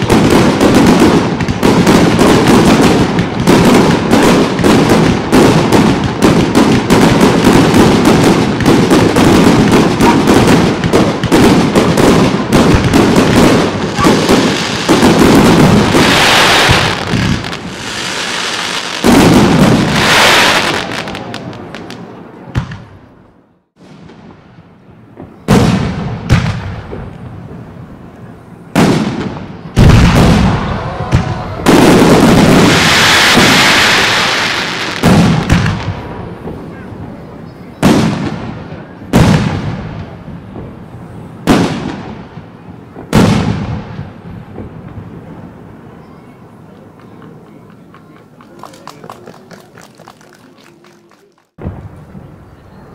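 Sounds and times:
rapid firework cracks and bangs: 0:00.0 - 0:23.0, 0:25.2 - 0:27.4, 0:28.7 - 0:36.8, 0:37.8 - 0:40.8, 0:41.4 - 0:45.5.

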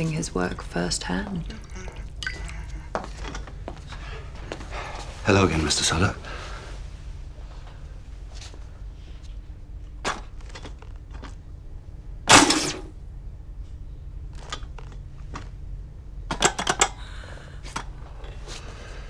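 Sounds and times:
electrical apparatus humming: 0:00.0 - 0:19.0
loud electrical crackling burst: 0:12.3 - 0:12.9.

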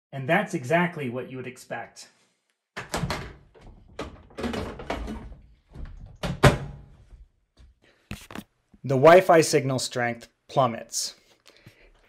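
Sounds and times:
microwave door knocks and clunks: 0:02.8 - 0:07.0.

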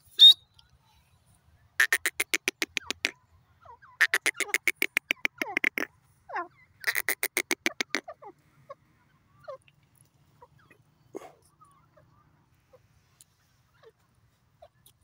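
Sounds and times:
bird calling harsh notes: 0:01.8 - 0:03.2, 0:03.8 - 0:05.9, 0:06.7 - 0:08.2.

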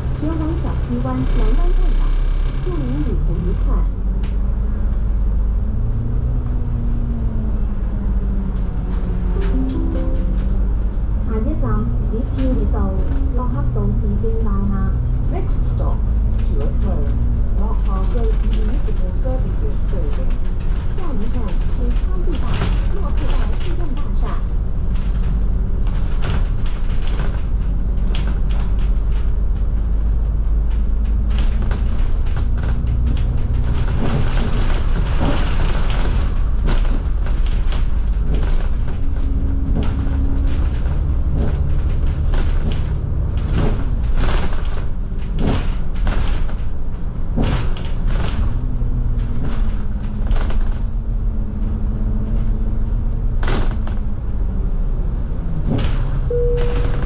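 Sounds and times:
bus diesel engine droning: 0:00.0 - 0:57.0
bodywork rattling and knocking: 0:16.1 - 0:54.5, 0:55.5 - 0:57.0.

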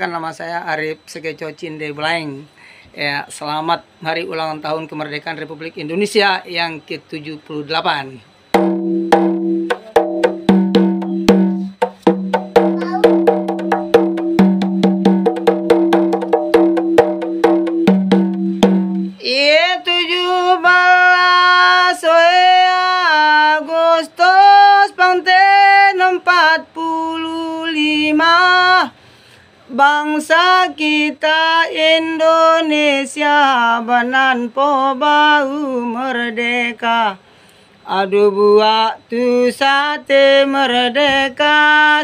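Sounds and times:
frame drum struck with fingers: 0:08.6 - 0:19.2.

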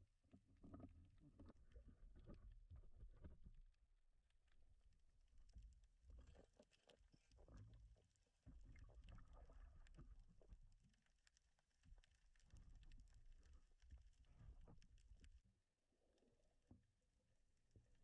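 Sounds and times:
underwater rumble: 0:04.4 - 0:11.0.

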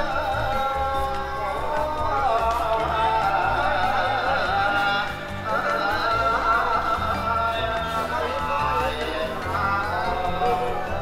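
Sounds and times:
low bass notes: 0:00.0 - 0:11.0.

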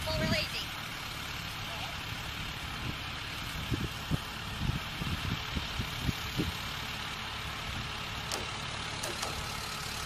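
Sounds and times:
wind buffeting microphone: 0:02.4 - 0:06.7.

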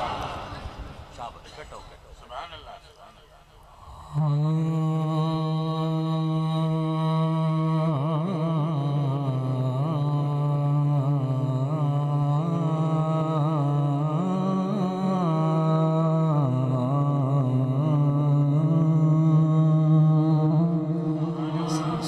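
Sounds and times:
man singing unaccompanied: 0:04.0 - 0:22.0.

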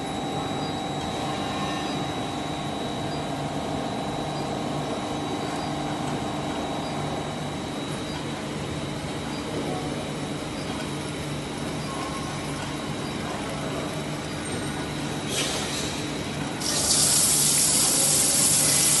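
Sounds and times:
induction hardening machine humming: 0:16.1 - 0:19.0
quench water spraying steam hiss: 0:16.6 - 0:19.0.

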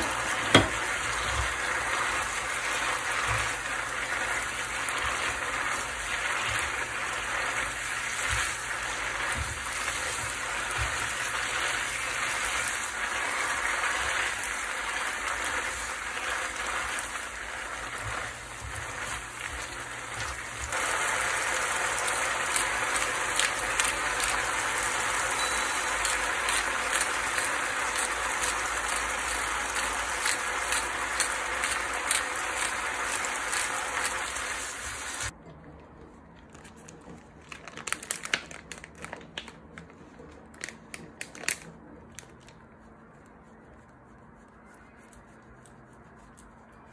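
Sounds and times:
pasta sizzling in oil: 0:00.0 - 0:35.3.

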